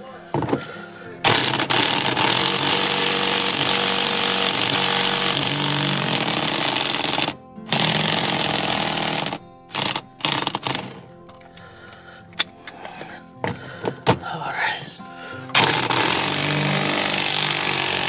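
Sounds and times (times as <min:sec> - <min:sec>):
electric impact wrench hammering: 0:00.0 - 0:11.4, 0:15.5 - 0:18.0.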